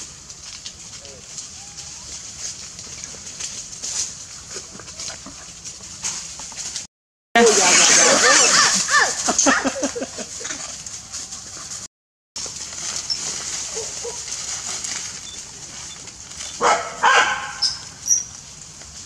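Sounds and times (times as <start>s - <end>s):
dog barking and yelping: 16.5s - 17.8s.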